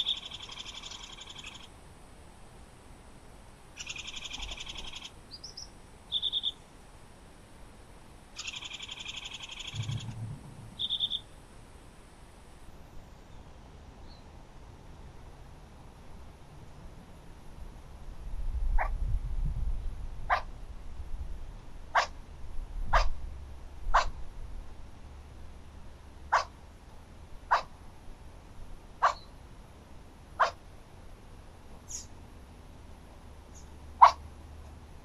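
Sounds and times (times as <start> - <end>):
animal barking calls: 3.8 - 6.6, 8.4 - 10.2, 10.8 - 11.3, 18.8 - 19.0, 20.3 - 20.5, 21.9 - 22.2, 22.9 - 23.2, 23.9 - 24.2, 26.3 - 26.6, 27.5 - 27.8, 29.0 - 29.3, 30.4 - 30.6, 33.6 - 34.3
low rumble: 9.7 - 11.0.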